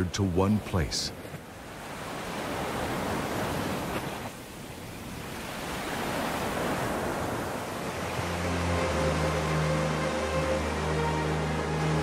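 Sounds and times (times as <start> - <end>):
low music notes: 8.2 - 12.0.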